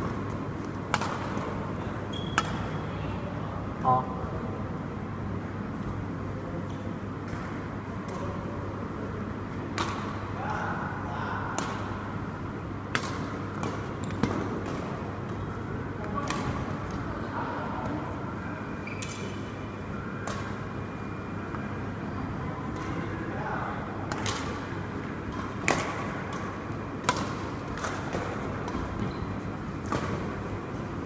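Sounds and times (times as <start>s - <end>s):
rackets striking shuttlecock: 0.6s - 2.8s, 12.9s - 15.0s, 24.1s - 24.7s, 25.3s - 29.2s, 29.8s - 30.5s.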